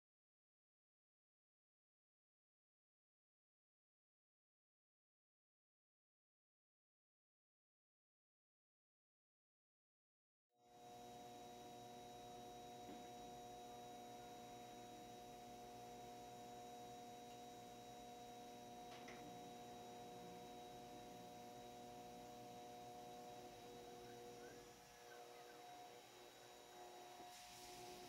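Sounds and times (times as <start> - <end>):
milling machine humming: 10.7 - 28.0.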